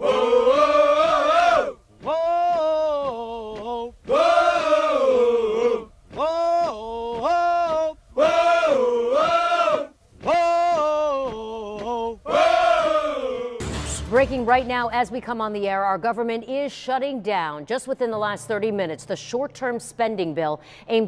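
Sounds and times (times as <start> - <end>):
person singing chant-like melody: 0.0 - 13.8.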